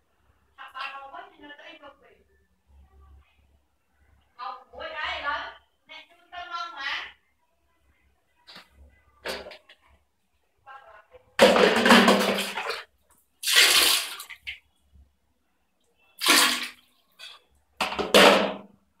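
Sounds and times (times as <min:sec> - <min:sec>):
toilet flushing: 0:11.5 - 0:14.5, 0:16.2 - 0:16.8.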